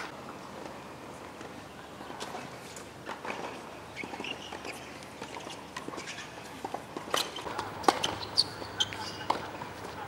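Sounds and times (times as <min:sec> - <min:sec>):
rackets striking tennis ball: 0:03.0 - 0:09.8
tennis ball bouncing on court: 0:03.1 - 0:09.8.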